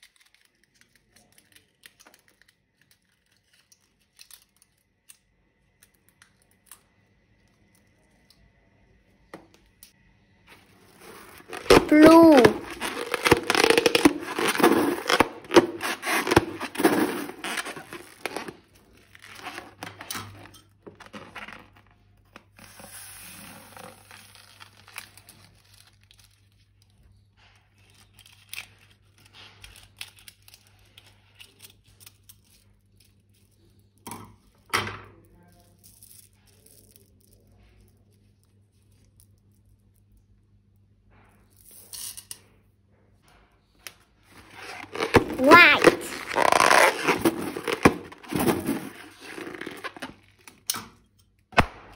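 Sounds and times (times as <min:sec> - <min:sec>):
crinkly crackling balloon sounds: 0:00.0 - 0:04.9, 0:10.5 - 0:20.1, 0:21.0 - 0:31.0, 0:44.2 - 0:50.6
squishy slime rustles: 0:10.5 - 0:19.8, 0:44.3 - 0:50.4.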